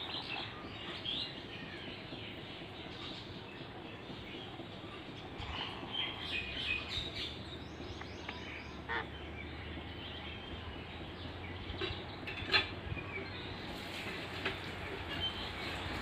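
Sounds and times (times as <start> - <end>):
parakeets chirping and chattering: 2.9 - 13.6.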